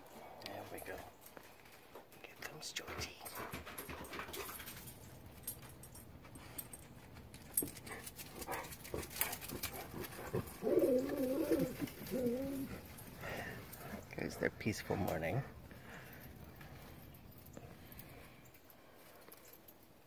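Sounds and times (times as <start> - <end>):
dog whining: 10.2 - 13.0.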